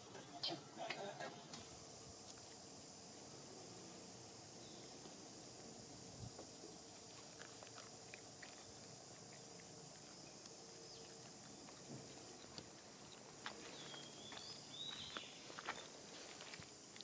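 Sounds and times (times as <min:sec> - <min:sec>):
steady high hiss: 0:00.0 - 0:17.0.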